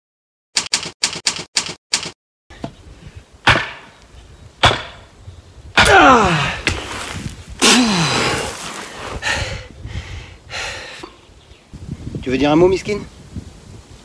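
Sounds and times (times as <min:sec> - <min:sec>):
typewriter keystrokes: 0:00.6 - 0:02.1
wooden cross knocked into earth: 0:03.4 - 0:04.0, 0:04.6 - 0:05.1
man groaning: 0:05.8 - 0:06.6, 0:07.6 - 0:08.5.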